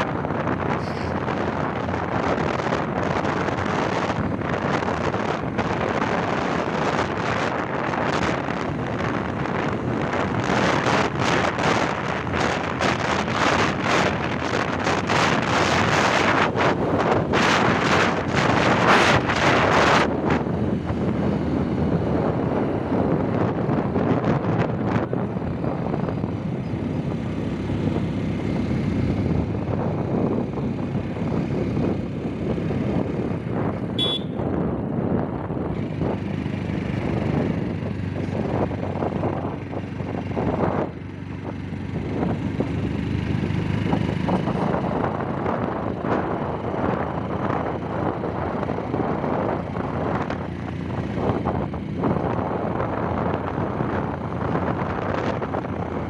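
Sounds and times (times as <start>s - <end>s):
motorcycle engine and road noise: 0.0s - 56.0s
wind rushing over microphone: 0.0s - 56.0s.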